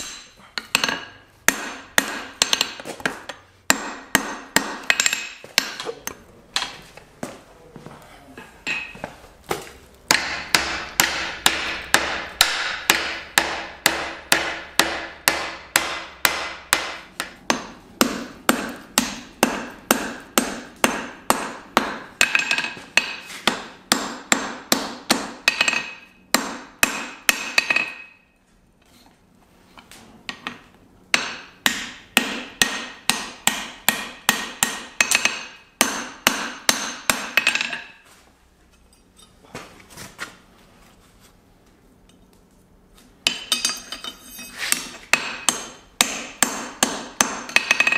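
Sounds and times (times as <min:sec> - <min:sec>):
hammer striking steel on anvil: 0:00.0 - 0:06.8, 0:08.6 - 0:09.0, 0:10.1 - 0:28.3, 0:30.4 - 0:38.0, 0:43.2 - 0:47.9
anvil ringing: 0:43.3 - 0:44.6.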